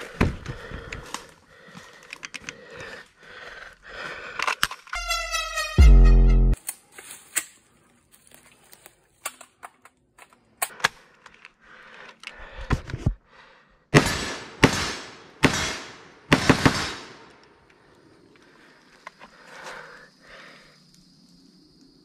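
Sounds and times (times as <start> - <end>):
rifle shots: 14.0 - 17.2.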